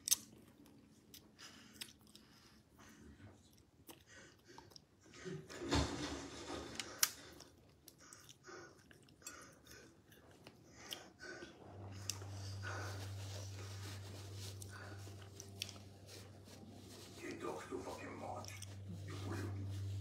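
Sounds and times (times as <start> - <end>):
person chewing: 0.0 - 5.1, 7.0 - 17.3, 18.2 - 20.0.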